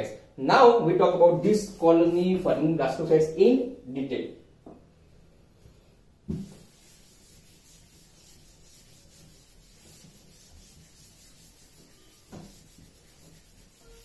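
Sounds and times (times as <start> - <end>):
duster wiping chalkboard: 5.6 - 14.0
thump: 6.3 - 6.6, 12.3 - 12.5.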